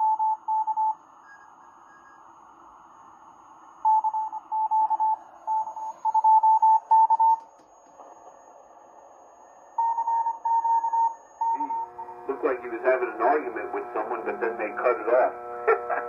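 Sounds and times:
morse code tone: 0:09.8 - 0:16.0
radio band hiss: 0:11.6 - 0:16.0.

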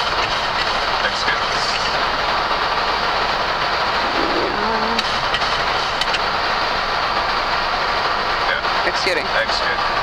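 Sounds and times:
aircraft engine noise: 0:00.0 - 0:07.7
airflow rushing: 0:03.8 - 0:05.3.

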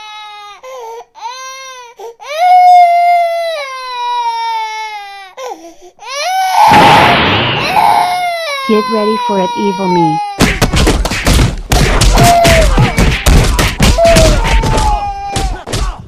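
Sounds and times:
baby crying: 0:00.0 - 0:06.7, 0:07.6 - 0:10.5, 0:13.8 - 0:15.7.

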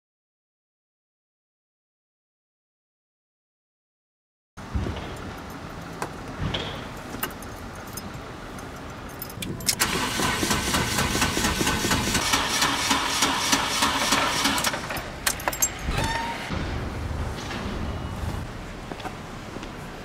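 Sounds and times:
starter motor cranking engine: 0:09.7 - 0:15.4.

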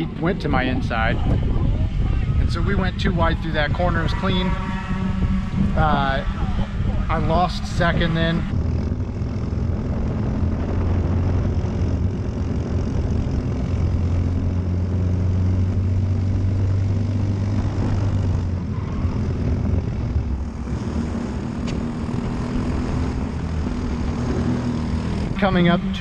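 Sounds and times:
kart engine running hard: 0:00.0 - 0:26.0.

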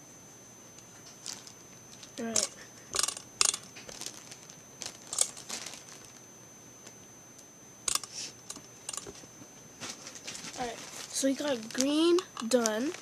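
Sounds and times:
plastic bag crinkling: 0:01.0 - 0:06.2, 0:09.8 - 0:13.0.

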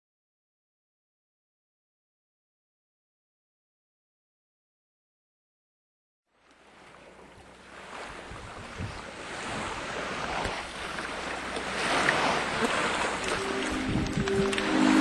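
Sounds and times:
water noise: 0:06.3 - 0:15.0
rushing wind: 0:07.7 - 0:15.0.

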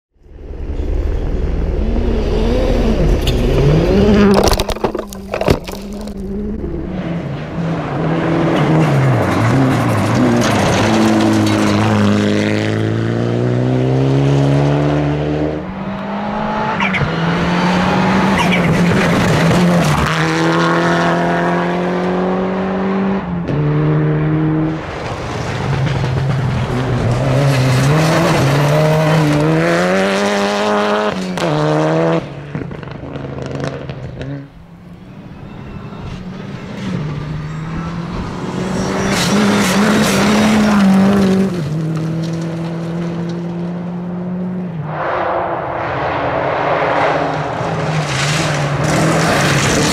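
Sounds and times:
rally car engines revving: 0:00.4 - 0:49.9
tyres skidding on gravel: 0:02.8 - 0:12.6, 0:18.2 - 0:20.4, 0:24.8 - 0:31.5, 0:35.4 - 0:43.8, 0:46.7 - 0:49.9.

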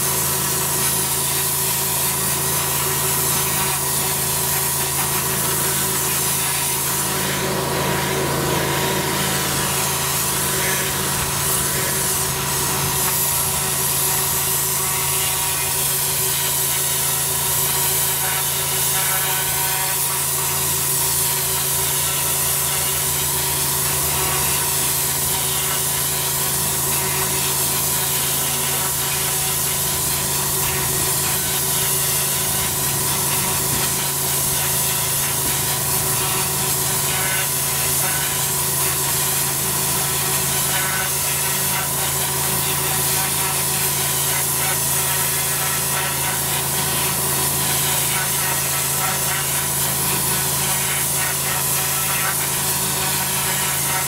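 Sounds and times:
pressure washer machine hum: 0:00.0 - 0:54.0
water jets hissing on paving: 0:20.1 - 0:54.0.

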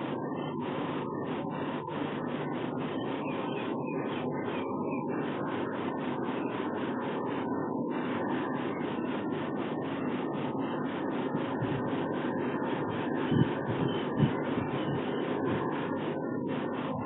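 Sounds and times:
wind rushing on microphone: 0:11.5 - 0:11.9, 0:12.8 - 0:15.7.

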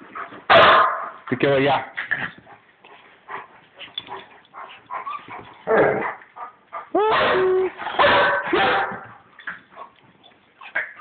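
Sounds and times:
small dogs barking: 0:00.5 - 0:01.2, 0:06.8 - 0:09.2.

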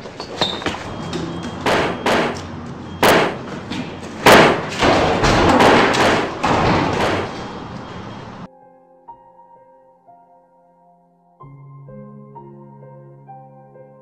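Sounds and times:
heavy thumps: 0:00.0 - 0:07.9.

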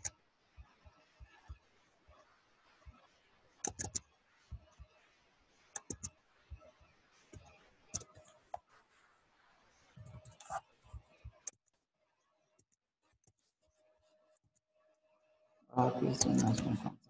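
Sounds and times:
computer mouse clicks: 0:03.6 - 0:04.0, 0:05.8 - 0:06.1, 0:07.3 - 0:08.6
keyboard keystrokes: 0:03.7 - 0:04.0, 0:05.8 - 0:06.1.

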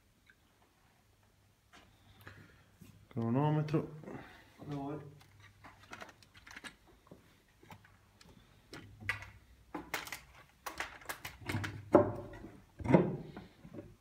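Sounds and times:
irregular clicks and knocks: 0:07.6 - 0:14.0.

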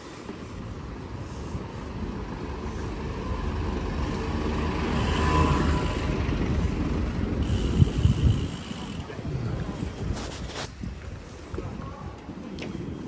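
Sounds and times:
motor vehicle passing: 0:02.0 - 0:09.1
wind rumble on microphone: 0:05.6 - 0:13.0.

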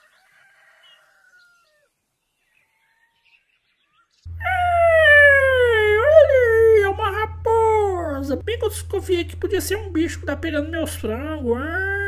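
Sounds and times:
high-pitched vocal call: 0:04.3 - 0:12.0
low electrical hum: 0:04.3 - 0:12.0.

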